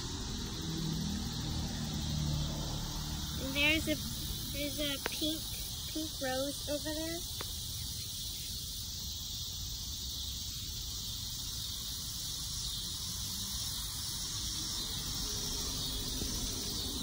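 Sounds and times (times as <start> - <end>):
insects chirping: 0.0 - 17.0.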